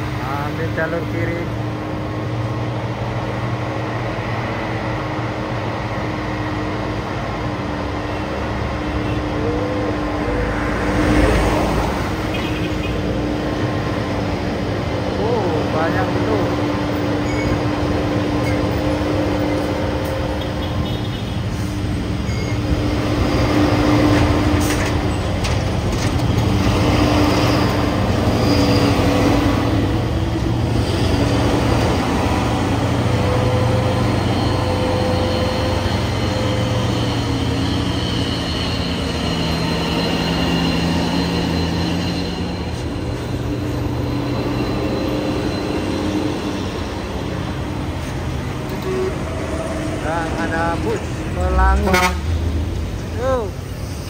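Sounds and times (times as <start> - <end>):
truck diesel engines running: 0.0 - 54.0.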